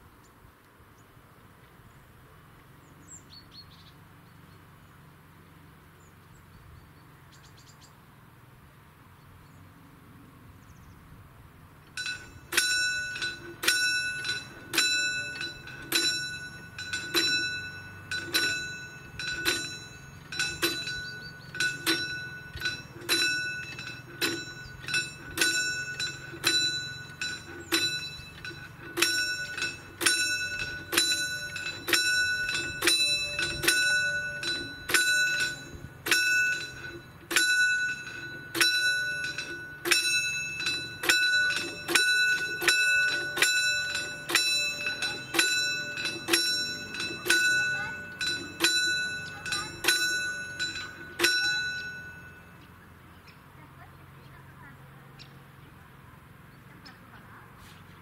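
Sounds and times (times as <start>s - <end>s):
level crossing warning bell: 11.8s - 57.6s.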